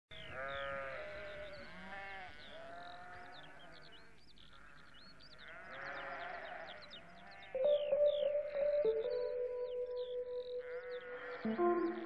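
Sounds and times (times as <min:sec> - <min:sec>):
long wavering animal calls: 0:07.4 - 0:12.0.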